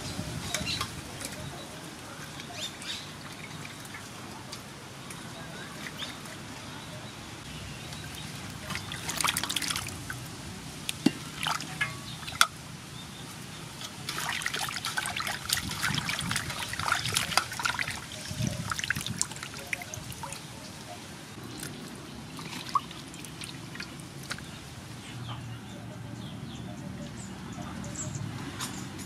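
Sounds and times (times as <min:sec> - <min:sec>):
water sloshing in metal basin: 0:00.5 - 0:06.5, 0:07.8 - 0:24.7.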